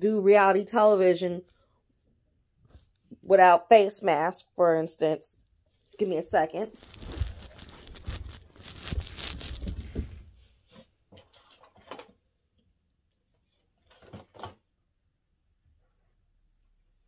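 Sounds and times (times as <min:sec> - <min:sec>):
bedding rustling: 0:06.3 - 0:10.6.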